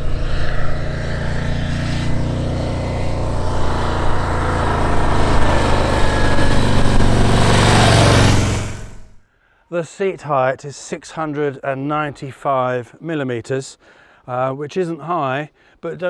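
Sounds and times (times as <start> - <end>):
motorcycle engine running: 0.0 - 9.2.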